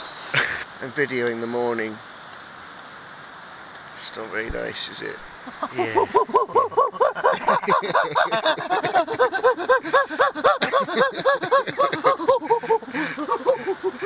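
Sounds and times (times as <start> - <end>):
man imitating monkey hoots: 5.5 - 14.0.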